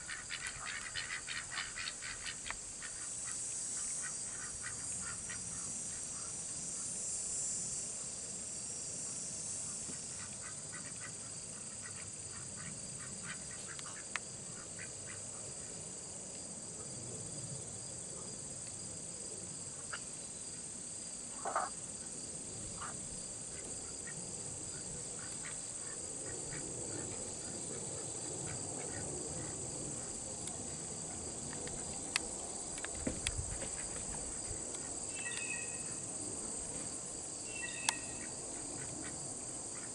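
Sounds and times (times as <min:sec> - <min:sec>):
ducks quacking: 0:00.0 - 0:03.0
high-pitched insect chorus: 0:00.0 - 0:39.9.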